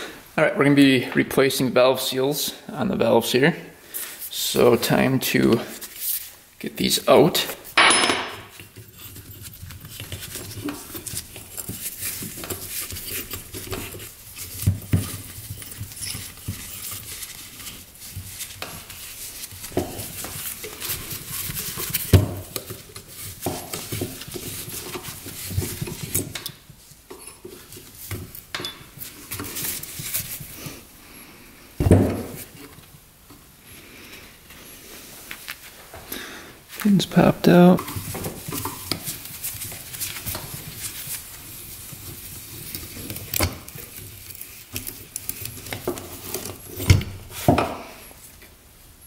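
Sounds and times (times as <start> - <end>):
metal tools clinking: 7.8 - 9.4.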